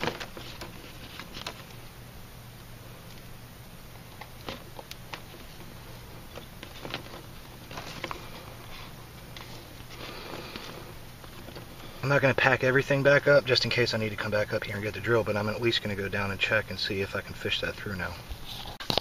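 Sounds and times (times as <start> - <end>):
cable rustling and scraping: 0.0 - 1.8, 4.1 - 12.5.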